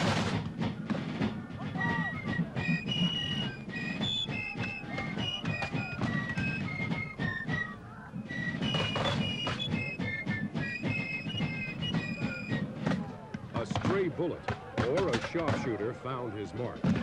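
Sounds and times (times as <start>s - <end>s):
flute playing quick melody: 1.6s - 13.3s.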